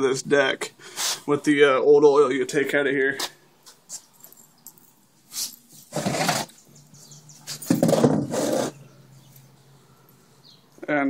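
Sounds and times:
plastic pan scraping on concrete: 0:05.4 - 0:06.7, 0:07.5 - 0:08.9.

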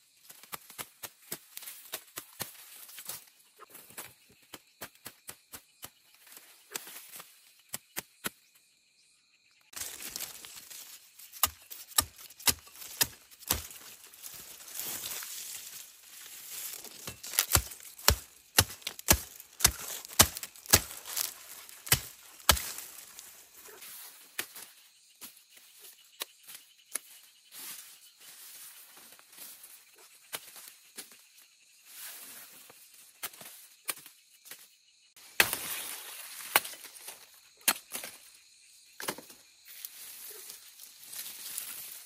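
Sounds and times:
blade chopping sugarcane: 0:11.4 - 0:13.9, 0:17.0 - 0:22.9.

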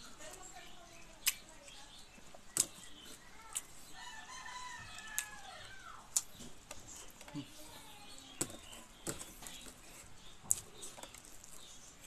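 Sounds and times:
rooster crowing: 0:04.0 - 0:06.0.

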